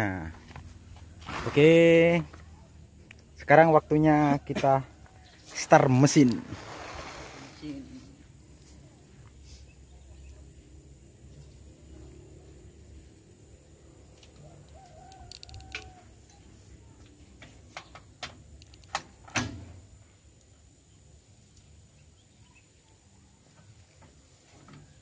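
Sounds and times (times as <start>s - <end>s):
chicken calling: 14.4s - 16.5s.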